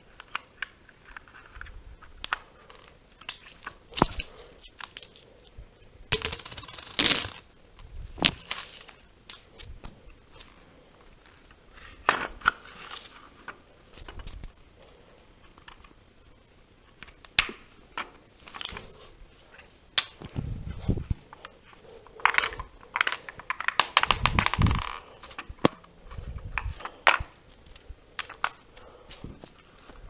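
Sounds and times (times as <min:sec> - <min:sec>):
plastic bricks clicking and rattling: 0:06.2 - 0:07.5, 0:22.2 - 0:25.8.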